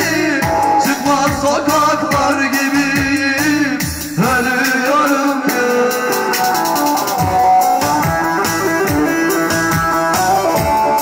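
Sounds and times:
drum machine beat: 0.0s - 11.0s
man singing into microphone: 0.0s - 11.0s.

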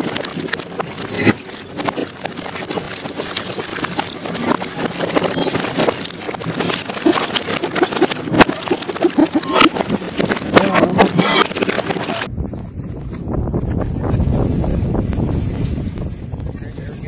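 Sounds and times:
water splashing: 0.0s - 12.3s
boat engine: 0.0s - 12.8s.

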